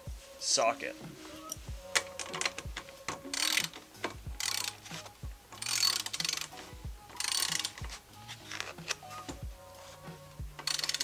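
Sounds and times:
socket ratchet clicking: 0:01.5 - 0:09.4, 0:10.5 - 0:11.0.

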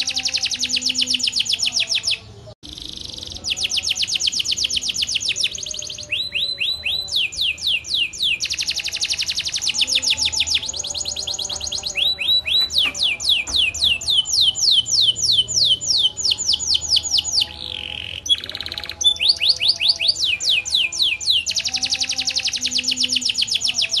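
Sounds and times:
canary singing trills: 0:00.0 - 0:24.0.

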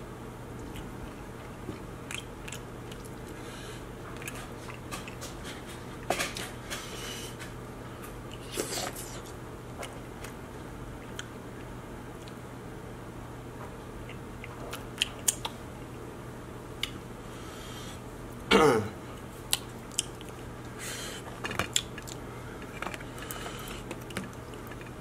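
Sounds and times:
faint steady hum: 0:00.0 - 0:25.0
man chewing: 0:00.5 - 0:07.4, 0:08.1 - 0:10.4, 0:11.0 - 0:12.4, 0:14.0 - 0:15.6, 0:19.2 - 0:25.0
wet mouth clicks: 0:15.0 - 0:15.6.

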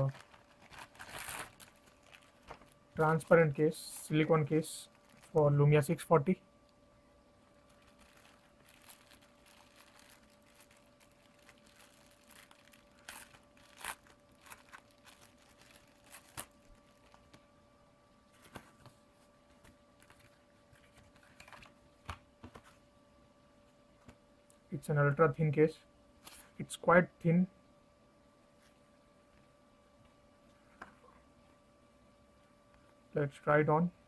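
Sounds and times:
plastic bag crinkling: 0:00.0 - 0:04.2, 0:04.8 - 0:05.5, 0:07.5 - 0:17.4
faint steady hum: 0:00.0 - 0:34.0.

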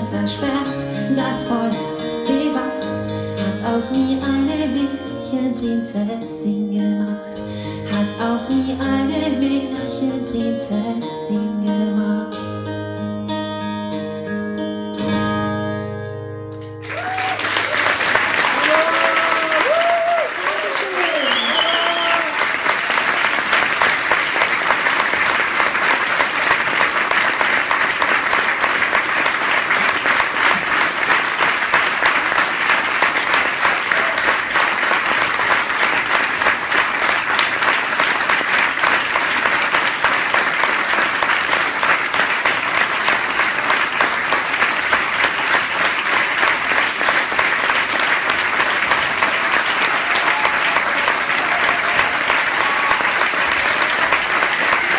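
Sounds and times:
audience applauding: 0:16.8 - 0:54.9.

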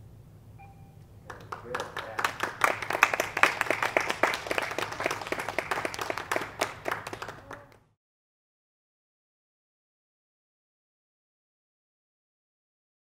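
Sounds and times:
small group clapping: 0:01.3 - 0:08.0.

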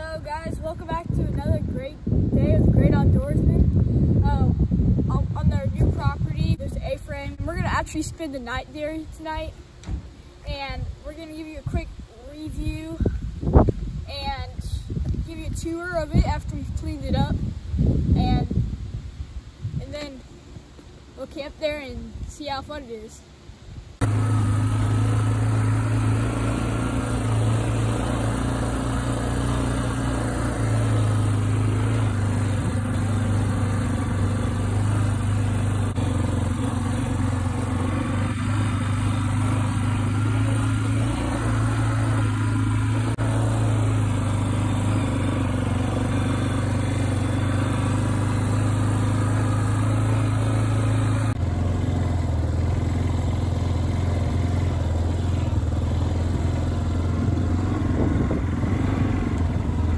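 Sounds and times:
atv engine droning: 0:24.0 - 0:59.9.

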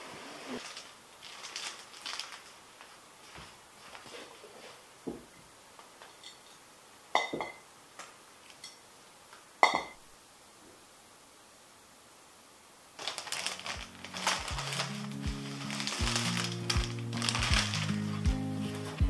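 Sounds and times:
plastic packs rustling: 0:00.5 - 0:04.9, 0:13.0 - 0:19.0
glass jar lid clinks: 0:07.2 - 0:07.6, 0:09.6 - 0:10.0.

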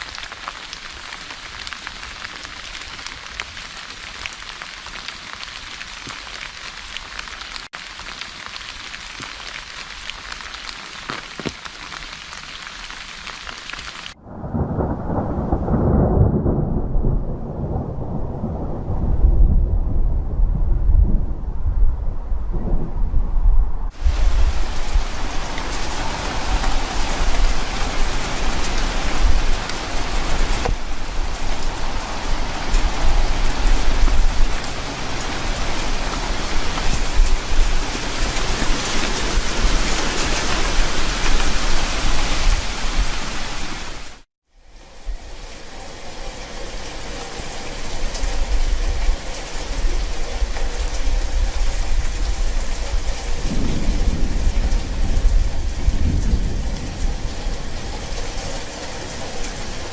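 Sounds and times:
steady rain: 0:00.0 - 0:59.9
low rumble of thunder: 0:14.2 - 0:35.9, 0:50.8 - 0:59.9.

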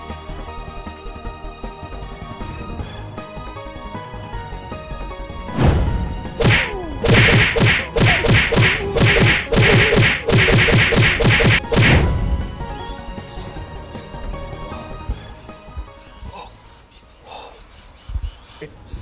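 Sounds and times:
faint background music: 0:00.0 - 0:19.0
punch impact sound effects: 0:05.6 - 0:12.3.

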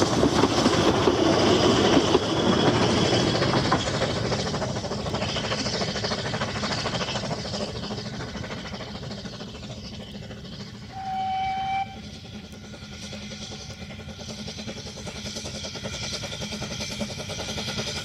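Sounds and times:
steam train running on track: 0:00.0 - 0:18.0
train whistle blast: 0:10.9 - 0:12.2.

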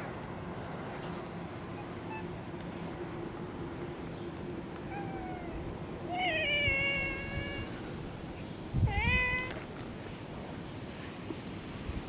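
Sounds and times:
cat meowing: 0:04.9 - 0:07.8, 0:08.8 - 0:09.6.

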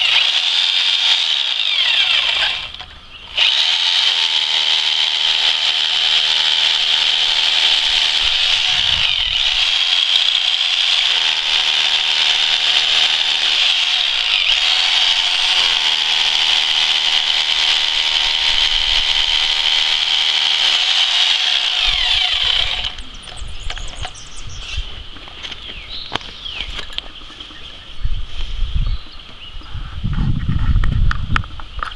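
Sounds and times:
rotary hammer drill boring stone: 0:00.0 - 0:23.0.

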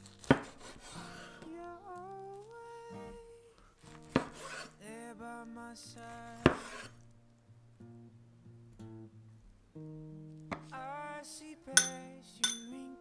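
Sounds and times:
knife slicing omelette: 0:00.2 - 0:00.9, 0:06.5 - 0:06.9
background music with singing: 0:04.7 - 0:06.9, 0:10.6 - 0:13.0.

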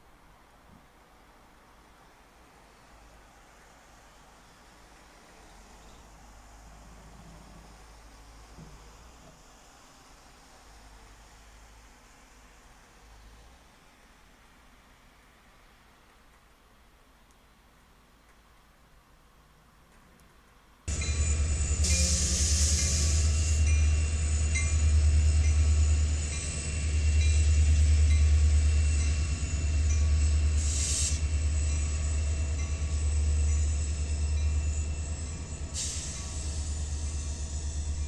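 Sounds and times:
diesel locomotive rumble: 0:20.9 - 0:38.0
short hissing bursts: 0:21.1 - 0:23.8, 0:30.4 - 0:31.5, 0:35.5 - 0:37.9.

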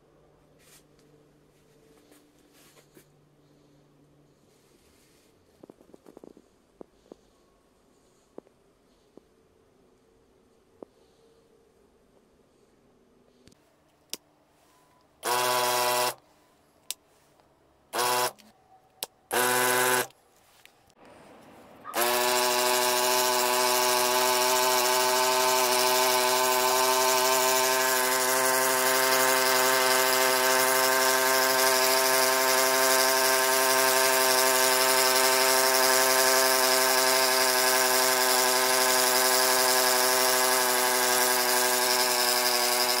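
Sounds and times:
small electric pump motor humming: 0:15.2 - 0:16.2, 0:17.9 - 0:18.4, 0:19.3 - 0:20.1, 0:21.9 - 0:43.0.

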